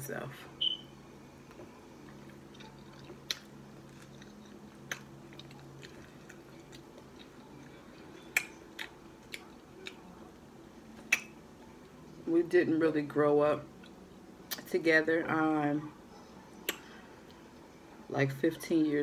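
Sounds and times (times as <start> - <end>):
faint steady hum: 0.0 - 19.0
person chewing: 2.0 - 10.2.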